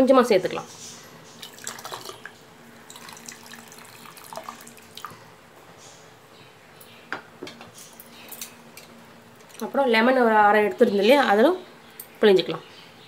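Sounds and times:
soft liquid splashing: 0:01.4 - 0:05.3.

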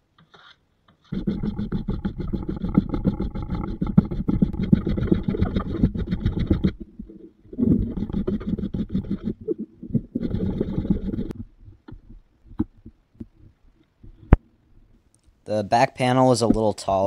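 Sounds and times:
hand tool rasping on wood: 0:01.1 - 0:06.9, 0:07.5 - 0:14.4.

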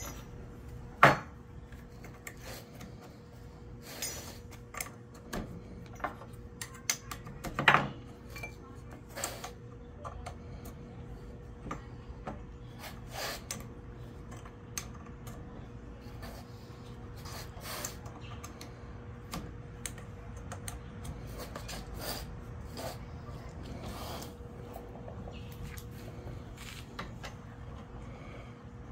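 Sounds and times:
faint steady hum: 0:00.0 - 0:28.9.

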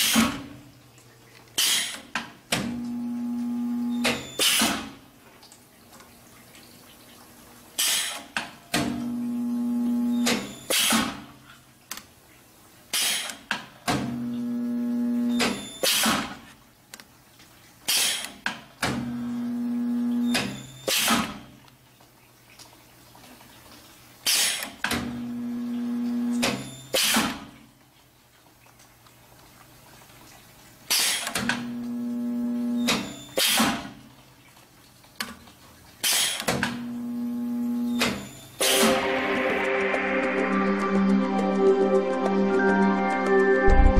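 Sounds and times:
electrical hum of welder: 0:02.6 - 0:04.8, 0:08.8 - 0:11.0, 0:14.2 - 0:16.1, 0:25.2 - 0:27.3, 0:31.3 - 0:33.7, 0:36.7 - 0:38.9.

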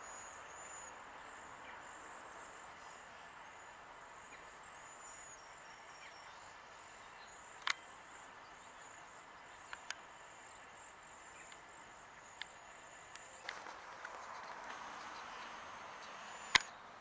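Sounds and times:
outdoor ambience: 0:00.0 - 0:17.0
sharp clicks: 0:13.2 - 0:16.8.

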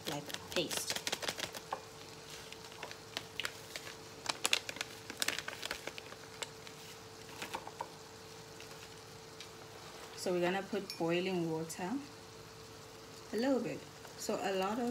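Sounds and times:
plastic sachets crinkling: 0:00.0 - 0:09.6
faint steady hum: 0:00.0 - 0:14.9.

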